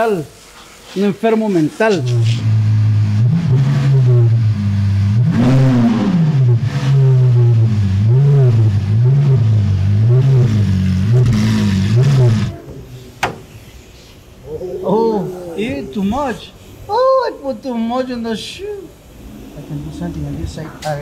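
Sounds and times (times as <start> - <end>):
car engine idling and revving: 2.2 - 12.6.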